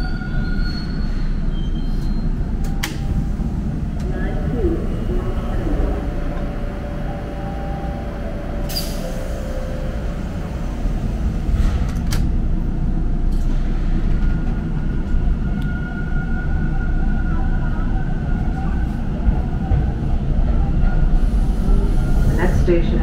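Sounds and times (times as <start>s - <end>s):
subway car low rumble: 0.0s - 23.0s
thin steady whine of train: 0.0s - 23.0s.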